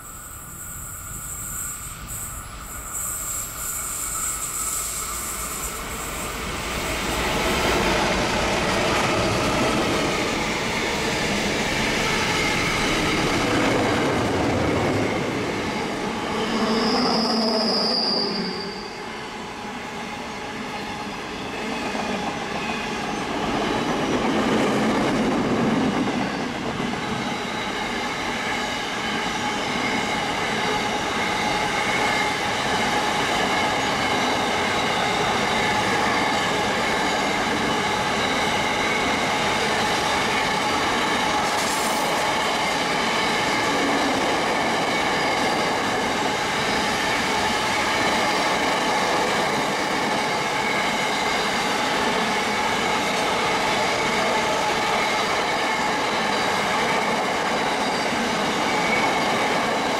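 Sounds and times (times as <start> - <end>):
high-pitched wheel squeal: 0.0 - 7.0, 15.7 - 19.3
freight train passing: 0.0 - 59.9.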